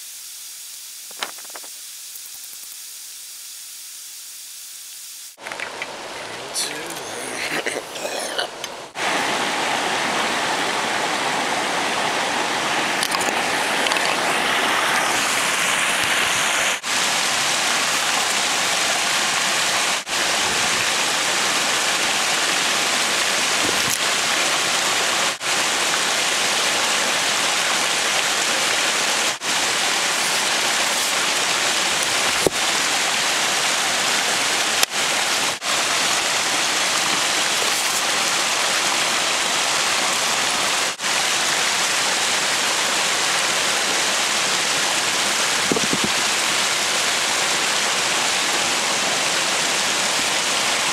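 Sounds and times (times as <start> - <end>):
creek water rushing: 5.4 - 50.9.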